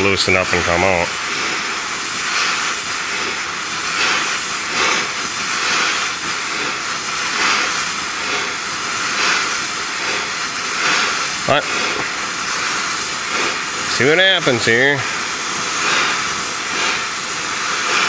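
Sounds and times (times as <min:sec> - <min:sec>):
gas torch flame hissing: 0:00.0 - 0:18.0.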